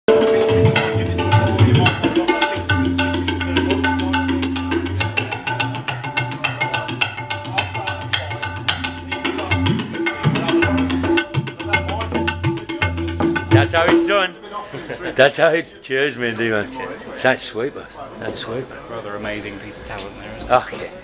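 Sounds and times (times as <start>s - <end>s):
tabla bass glides: 0.1s - 14.2s
tabla playing fast strokes: 0.1s - 14.3s.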